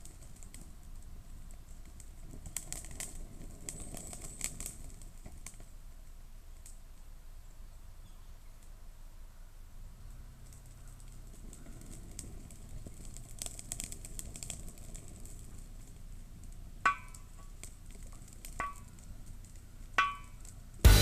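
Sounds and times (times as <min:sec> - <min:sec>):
thin snaps of fire: 0:00.0 - 0:05.7, 0:06.5 - 0:06.8, 0:10.1 - 0:20.9
wood fire crackling: 0:00.0 - 0:07.2, 0:09.8 - 0:21.0
stick knocking metal stove: 0:16.8 - 0:17.6, 0:20.0 - 0:21.0.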